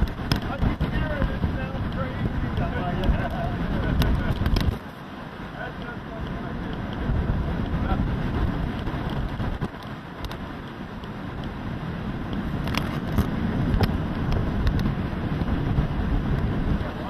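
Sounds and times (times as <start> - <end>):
sharp clicks and knocks: 0.0 - 0.9
wind buffeting microphone: 0.0 - 17.0.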